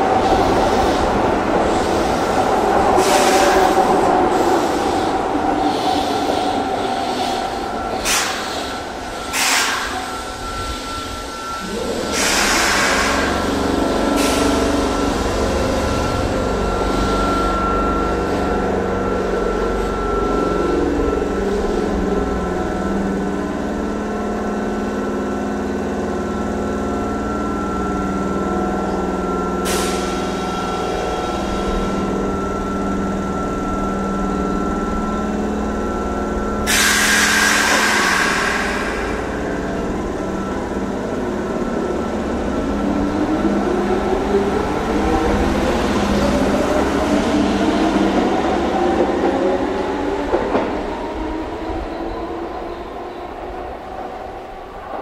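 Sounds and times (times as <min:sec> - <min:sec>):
train machinery hum: 0:00.0 - 0:55.0
air hissing: 0:36.7 - 0:39.3.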